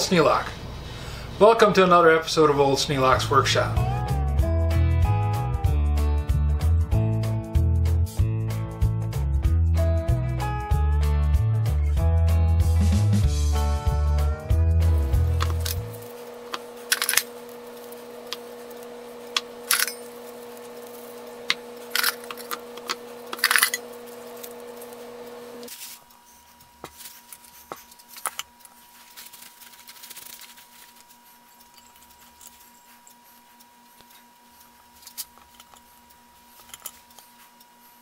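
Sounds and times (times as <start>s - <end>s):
handling noise: 15.2s - 33.2s
small metal parts clinking: 16.9s - 17.4s, 19.6s - 20.9s, 21.8s - 24.5s, 36.6s - 37.2s.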